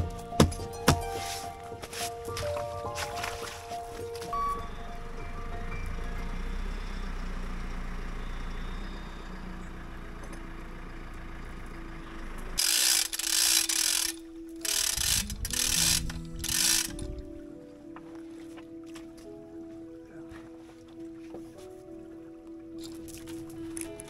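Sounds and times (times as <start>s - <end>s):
tractor engine low rumble: 0.0s - 17.5s
winch humming: 0.0s - 17.9s
loud mechanical bursts: 12.6s - 17.1s.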